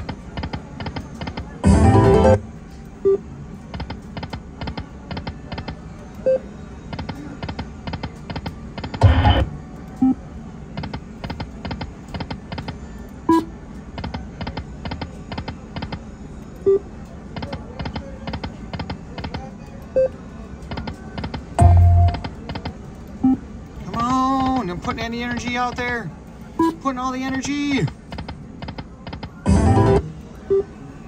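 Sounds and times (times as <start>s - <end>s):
short beeps: 21.6s - 22.2s
loud slot machine burst: 29.5s - 30.0s.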